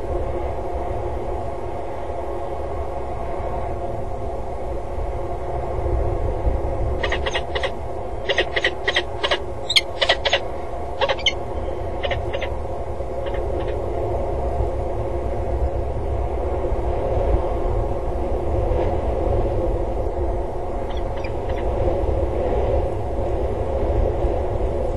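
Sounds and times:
steady low rumble: 0:00.0 - 0:24.9
falcon calling: 0:07.0 - 0:12.6, 0:13.2 - 0:13.8, 0:20.9 - 0:21.7.

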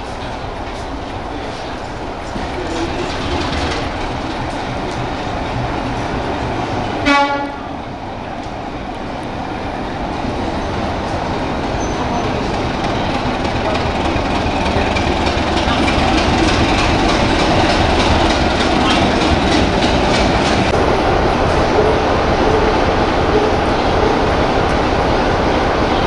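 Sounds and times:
diesel locomotive engine running: 0:00.0 - 0:26.0
locomotive horn blast: 0:07.0 - 0:07.8.

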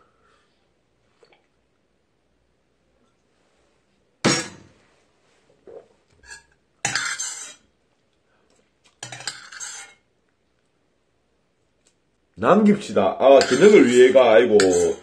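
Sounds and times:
utensil scraping metal bowl: 0:06.2 - 0:07.6, 0:09.0 - 0:10.0, 0:13.4 - 0:15.0.

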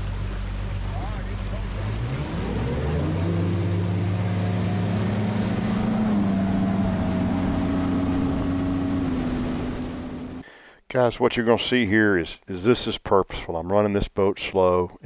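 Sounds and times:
hull rushing through water: 0:00.0 - 0:10.4
outboard motor running: 0:00.0 - 0:10.4.

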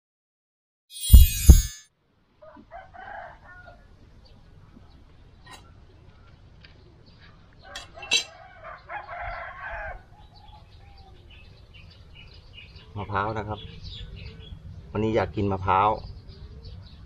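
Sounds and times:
sharp knocks: 0:01.1 - 0:01.8
rooster crowing: 0:02.4 - 0:03.9, 0:07.7 - 0:10.2.

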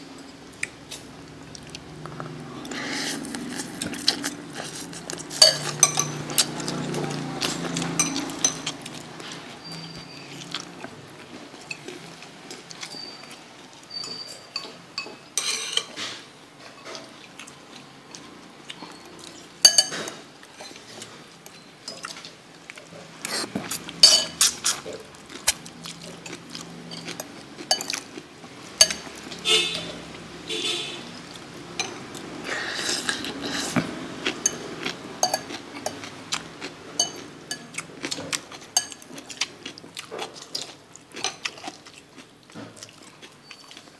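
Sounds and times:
fork clinking against ceramic bowl: 0:05.3 - 0:08.9, 0:13.9 - 0:16.0, 0:19.6 - 0:20.8, 0:24.0 - 0:24.6, 0:28.8 - 0:29.9, 0:35.2 - 0:36.1, 0:37.0 - 0:37.8, 0:38.8 - 0:39.1.

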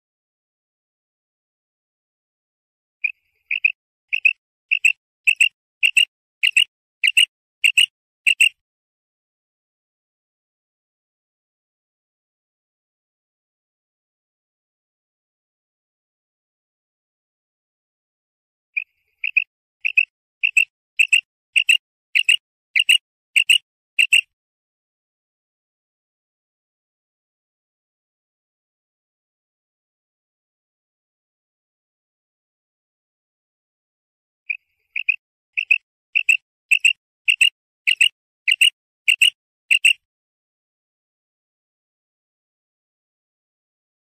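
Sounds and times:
quail calling double notes: 0:03.5 - 0:08.5, 0:19.2 - 0:24.2.

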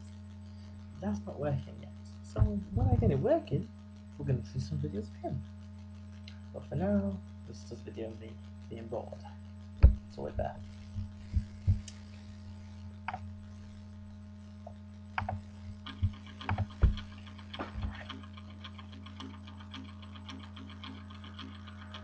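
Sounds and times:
quiet music from speaker: 0:00.0 - 0:18.5
electrical mains hum: 0:00.0 - 0:22.0
dull knocks and bumps: 0:02.4 - 0:03.2, 0:09.8 - 0:11.9, 0:15.2 - 0:18.0.

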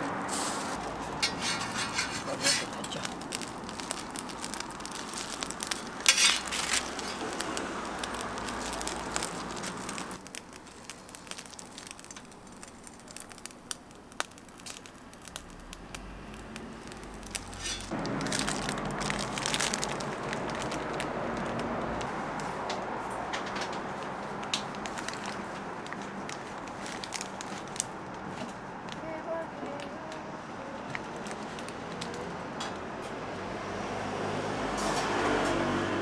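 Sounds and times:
metal spatula scraping: 0:00.3 - 0:03.0, 0:06.0 - 0:07.3, 0:17.5 - 0:17.9
food sizzling on a griddle: 0:00.3 - 0:20.9.

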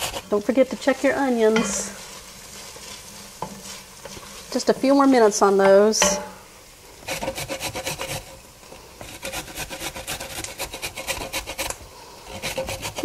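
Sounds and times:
carrot rasping on metal grater: 0:07.1 - 0:08.3, 0:09.0 - 0:13.0.

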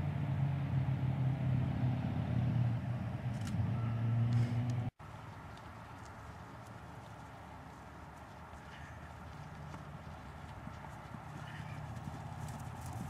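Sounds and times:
engine humming: 0:00.0 - 0:13.0.

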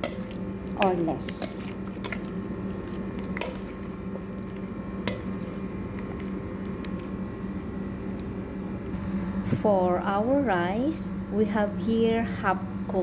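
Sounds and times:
steady low hum: 0:00.0 - 0:13.0
raw chicken squelching: 0:00.3 - 0:07.1.

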